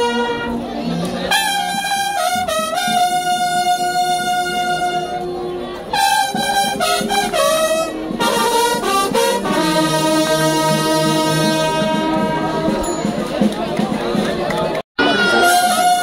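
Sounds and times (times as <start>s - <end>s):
brass band playing: 0.0s - 14.0s, 15.0s - 16.0s.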